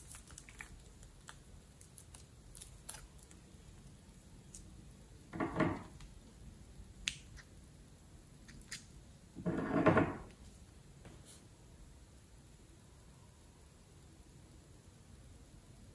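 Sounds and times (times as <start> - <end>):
slime squelching: 0.0 - 4.8.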